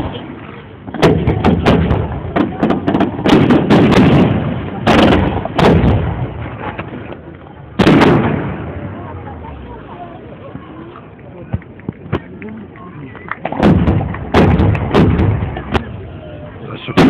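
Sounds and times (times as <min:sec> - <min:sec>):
fireworks exploding: 0:00.8 - 0:06.9, 0:07.8 - 0:09.6, 0:13.4 - 0:16.2.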